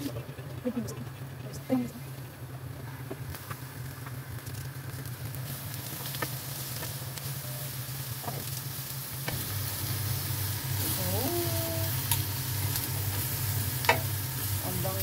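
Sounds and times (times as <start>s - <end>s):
steady low hum: 0.0s - 15.0s
prawns sizzling on grill pan: 1.5s - 15.0s
metal tongs clicking on pan: 13.8s - 14.1s.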